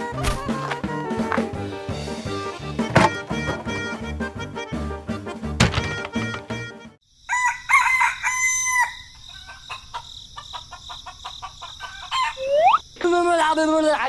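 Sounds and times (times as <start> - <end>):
rooster crowing: 7.2 - 12.5.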